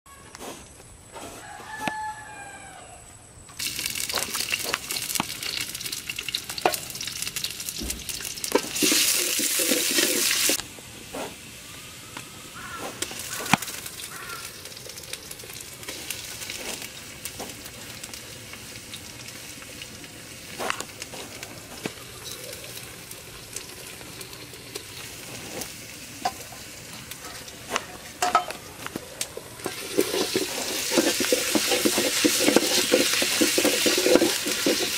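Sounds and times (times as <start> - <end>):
rooster crowing: 1.4 - 3.1
food sizzling in hot oil: 3.6 - 10.6, 11.3 - 34.9.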